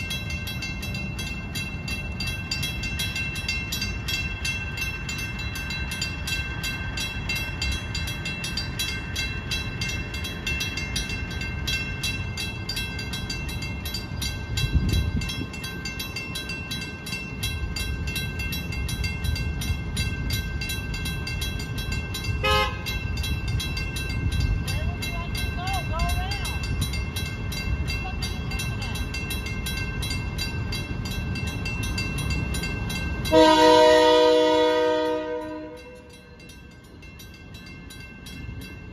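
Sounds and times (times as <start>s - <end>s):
railroad crossing bells ringing: 0.0s - 38.9s.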